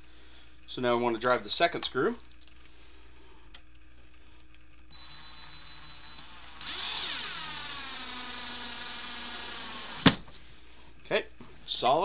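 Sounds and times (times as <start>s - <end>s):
cordless drill driving a screw: 4.9s - 10.2s.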